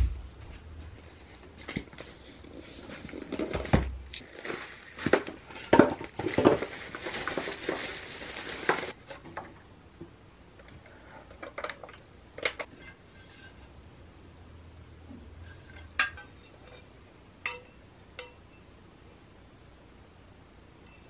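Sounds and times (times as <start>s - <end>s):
cardboard packaging handled: 1.3s - 9.0s
plastic bag crinkling: 4.2s - 9.0s.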